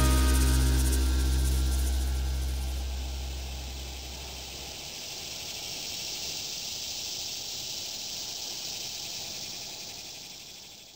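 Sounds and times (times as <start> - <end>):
low song notes: 0.0 - 4.6
cicadas buzzing: 0.0 - 10.9.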